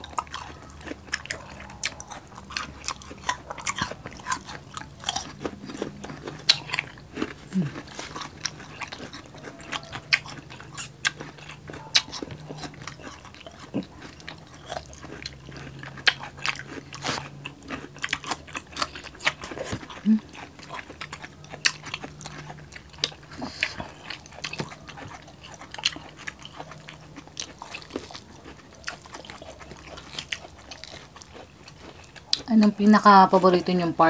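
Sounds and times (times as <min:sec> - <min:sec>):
lip smacking: 0:00.0 - 0:32.5
people chewing: 0:00.0 - 0:34.0.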